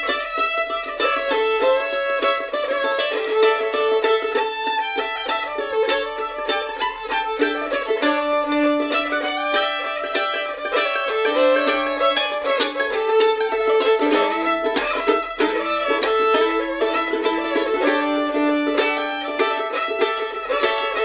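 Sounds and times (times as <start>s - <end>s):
bowed fiddle melody: 0.0s - 21.0s
mandolin picking: 0.0s - 21.0s.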